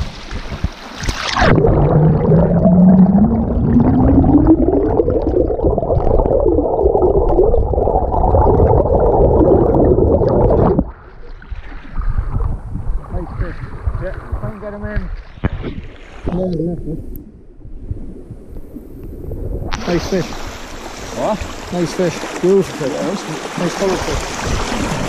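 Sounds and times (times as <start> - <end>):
muffled underwater creek water: 0.0 - 25.0
hum rising in pitch: 1.4 - 10.8
stream rushing: 19.7 - 25.0.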